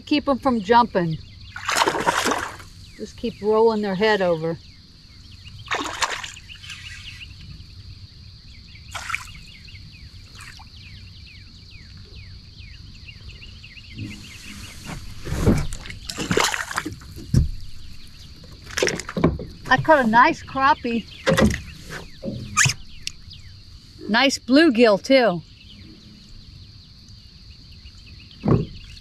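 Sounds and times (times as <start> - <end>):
fish thrashing in water: 1.5 - 2.8, 5.6 - 6.8, 8.9 - 9.5, 15.5 - 19.2.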